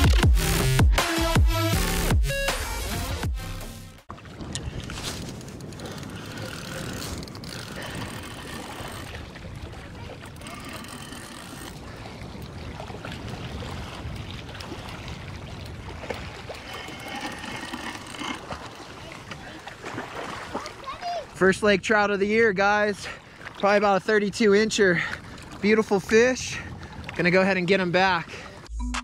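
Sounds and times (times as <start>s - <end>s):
wind on microphone: 4.1s - 21.4s
spinning reel cranking: 5.5s - 9.1s, 10.3s - 11.8s, 16.6s - 18.5s.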